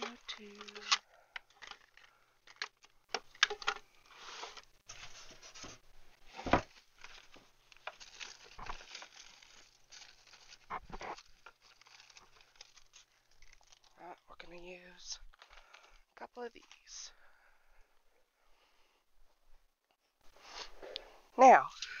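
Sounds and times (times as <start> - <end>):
rustling and crinkling: 0.0 - 17.1.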